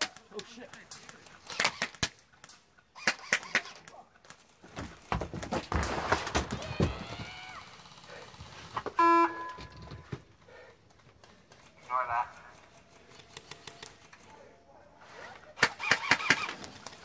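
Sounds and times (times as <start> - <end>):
boots and gear knocking: 4.3 - 7.5.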